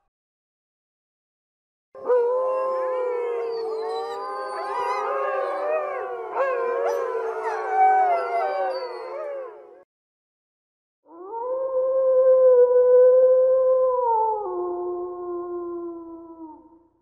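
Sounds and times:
wolves howling in chorus: 0:02.0 - 0:09.8.

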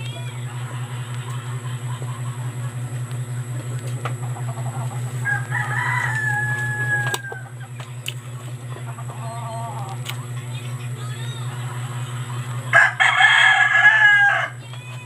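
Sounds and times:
low hum: 0:00.0 - 0:15.0
rooster crowing: 0:04.7 - 0:07.8, 0:12.6 - 0:14.7.

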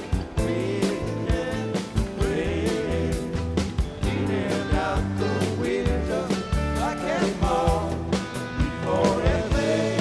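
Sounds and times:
rock band playing: 0:00.0 - 0:10.0.

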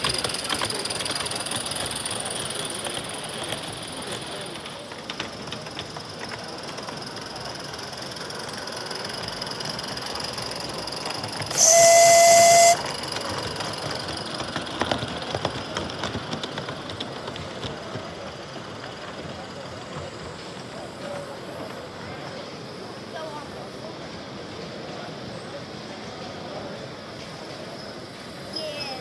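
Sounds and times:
busy hall background noise: 0:00.0 - 0:29.0
steam whistle: 0:11.5 - 0:13.0.

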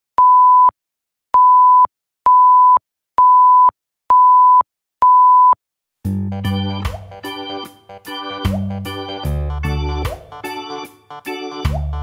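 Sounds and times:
music: 0:06.0 - 0:12.0.

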